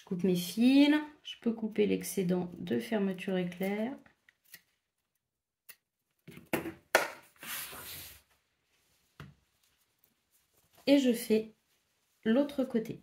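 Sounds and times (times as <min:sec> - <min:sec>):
fabric rustling: 0:07.3 - 0:12.8.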